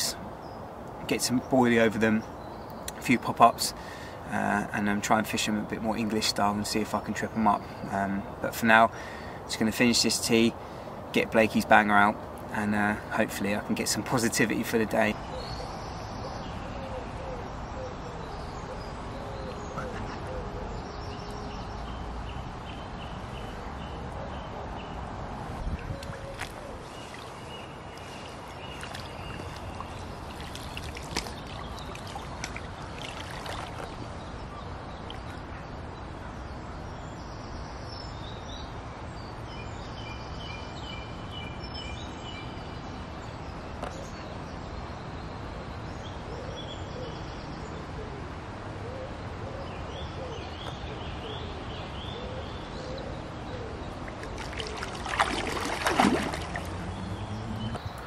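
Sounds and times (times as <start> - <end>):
faint birdsong: 0.0 - 58.0
lake water lapping: 25.9 - 35.4, 54.0 - 57.9
fish splashing: 26.1 - 34.2, 54.0 - 57.6.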